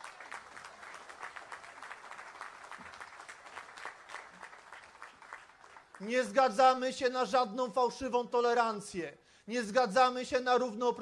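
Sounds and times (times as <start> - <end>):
crowd applauding: 0.0 - 6.1.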